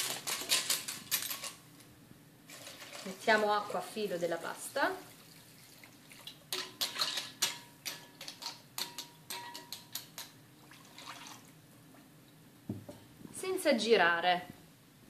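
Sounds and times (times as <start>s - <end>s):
metal spoon clinking on a pot: 6.5s - 10.4s
water pouring from a jug: 10.6s - 11.5s.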